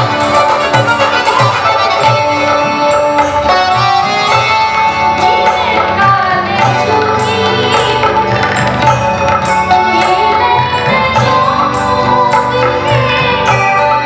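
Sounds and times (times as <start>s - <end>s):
harmonium: 0.0s - 14.0s
plucked string instrument: 0.0s - 14.0s
tabla beat: 0.0s - 14.0s.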